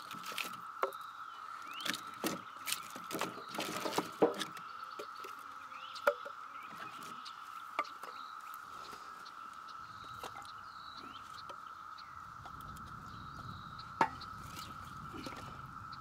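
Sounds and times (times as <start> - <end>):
firewood logs knocking: 0.0 - 1.0, 1.8 - 5.4
birds chirping: 0.0 - 16.0.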